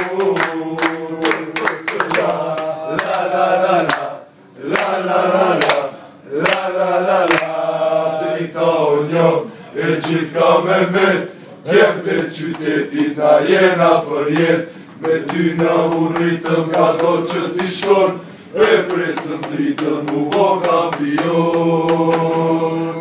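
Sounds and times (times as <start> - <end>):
men singing together: 0.0 - 23.0
sharp knocks keeping a beat: 12.1 - 13.2, 14.3 - 22.4.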